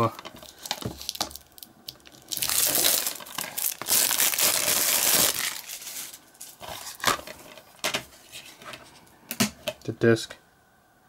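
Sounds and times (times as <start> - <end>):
plastic wrap crinkling and tearing: 0.0 - 7.7.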